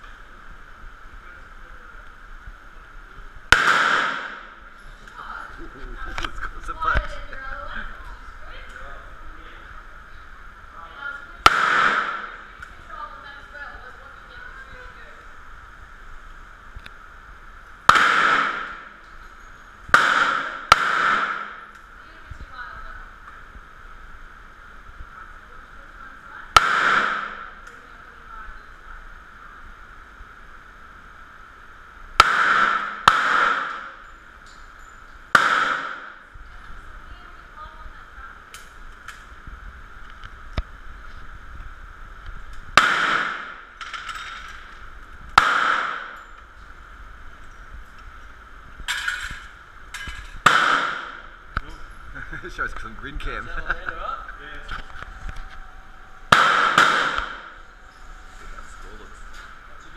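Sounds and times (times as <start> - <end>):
revolver shots echoing: 3.5 - 4.6, 11.4 - 12.6, 17.9 - 19.0, 19.9 - 21.7, 26.5 - 27.6, 32.1 - 34.0, 35.3 - 36.3, 42.7 - 43.8, 45.3 - 46.2, 50.4 - 51.4, 56.3 - 57.7.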